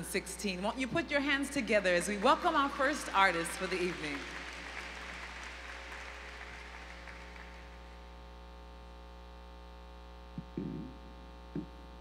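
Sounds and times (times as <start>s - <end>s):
electrical buzz from sound system: 0.0s - 12.0s
applause: 1.4s - 8.0s.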